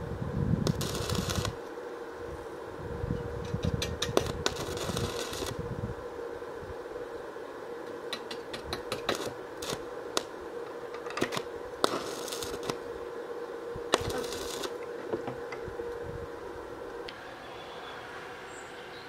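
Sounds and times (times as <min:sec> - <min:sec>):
welding arc hissing: 0:00.0 - 0:01.7, 0:03.3 - 0:05.7, 0:07.9 - 0:15.0
steady hum: 0:00.0 - 0:19.0
welding arc crackles and pops: 0:00.6 - 0:01.7, 0:03.4 - 0:05.7, 0:07.9 - 0:12.9, 0:13.8 - 0:15.4.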